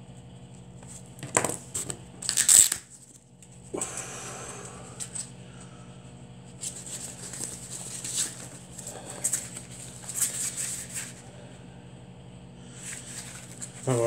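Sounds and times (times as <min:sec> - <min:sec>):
velcro strap rustling: 0:02.2 - 0:03.2.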